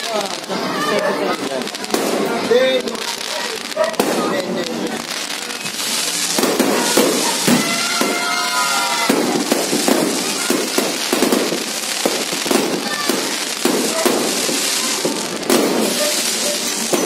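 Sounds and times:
fireworks bangs and crackling: 0:00.0 - 0:17.0.

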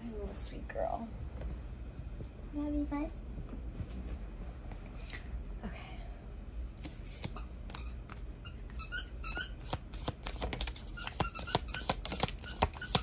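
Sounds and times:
squeaky rubber toy squeaking: 0:07.4 - 0:09.7, 0:10.8 - 0:13.0.

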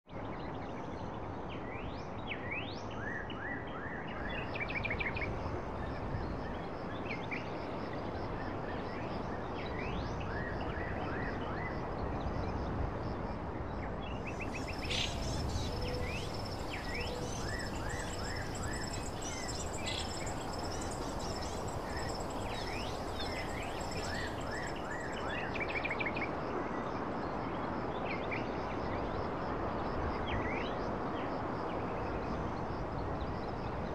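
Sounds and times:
steady background hiss: 0:14.1 - 0:26.0
bird chirps and calls: 0:14.4 - 0:25.2.

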